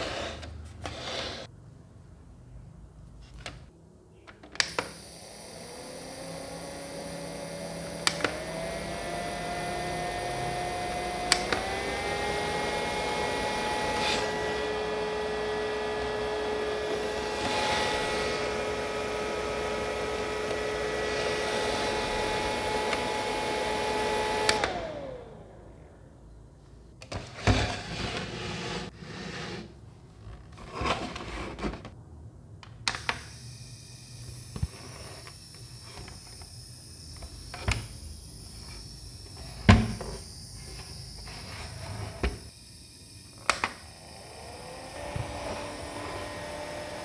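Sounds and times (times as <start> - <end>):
fan motor whine: 4.7 - 26.0, 33.1 - 47.0.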